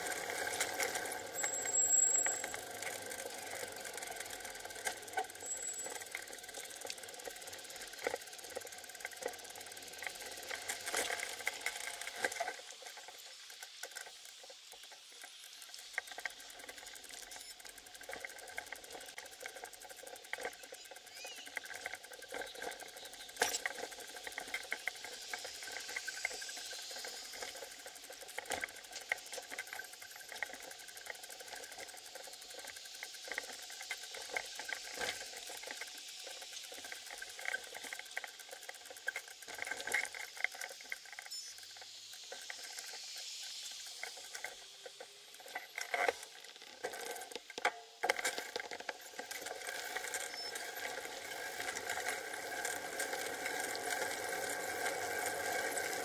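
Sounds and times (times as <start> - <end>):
bike rattling and knocking: 0.0 - 26.4, 27.2 - 41.1, 45.3 - 56.0.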